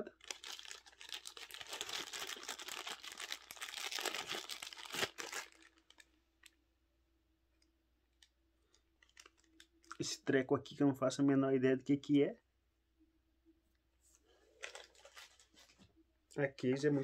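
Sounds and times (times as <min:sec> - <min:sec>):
plastic bag crinkling: 0:00.1 - 0:06.1, 0:08.7 - 0:10.0, 0:14.5 - 0:15.8.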